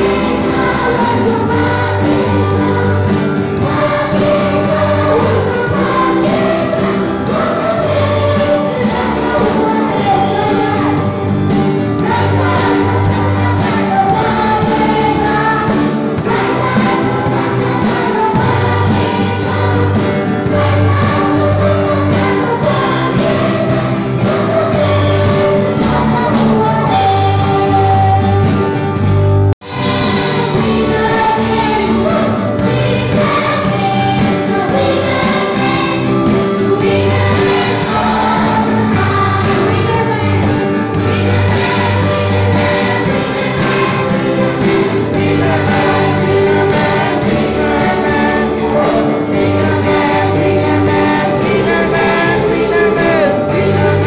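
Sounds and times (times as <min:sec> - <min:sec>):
children singing together: 0:00.0 - 0:28.8, 0:29.6 - 0:54.0
instrumental backing music: 0:00.0 - 0:54.0.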